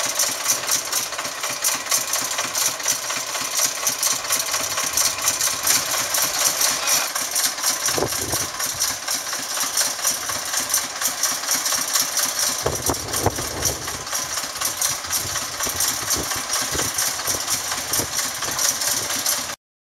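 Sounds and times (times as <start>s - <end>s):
diesel locomotive engine pulsing: 0.0s - 19.6s.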